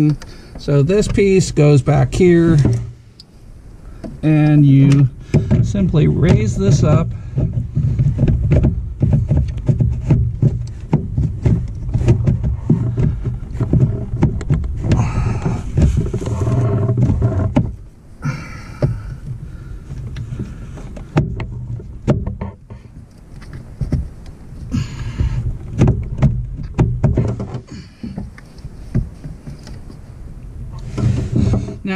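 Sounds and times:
plastic knocks and clicks: 0:04.8 - 0:17.8, 0:18.7 - 0:24.4, 0:25.1 - 0:30.0.

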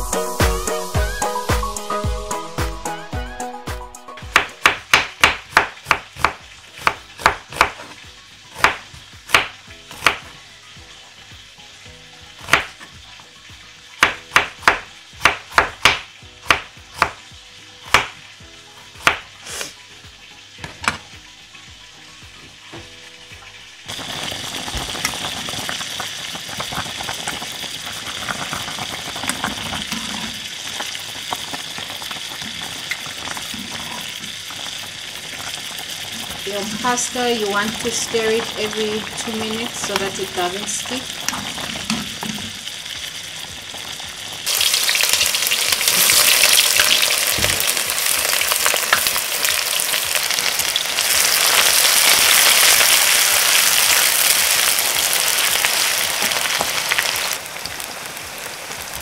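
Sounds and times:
knife chopping onion on board: 0:04.3 - 0:07.9, 0:08.5 - 0:10.3, 0:12.4 - 0:12.8, 0:14.0 - 0:17.2, 0:17.8 - 0:18.2, 0:19.0 - 0:19.3
pot of pasta boiling: 0:04.3 - 0:59.0.

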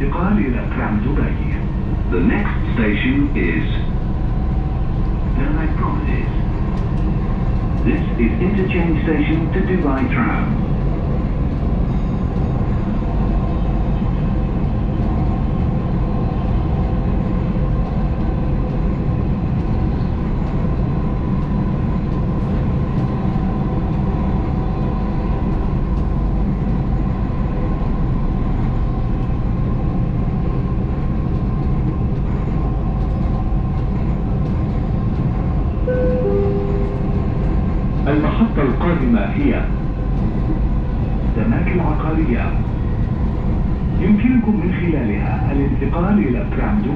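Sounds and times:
electric train rumbling: 0:00.0 - 0:46.9
falling tones: 0:35.9 - 0:38.0.

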